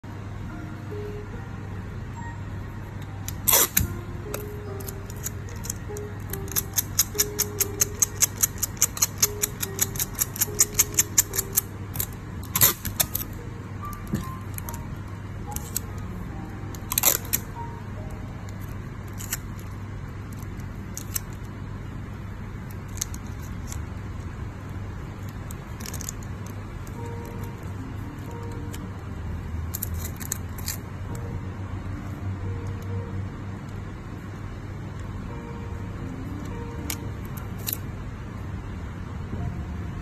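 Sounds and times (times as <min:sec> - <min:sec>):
steady low hum: 0:00.0 - 0:40.0
music with ticking beat: 0:00.1 - 0:40.0
sharp clicks: 0:03.4 - 0:13.3.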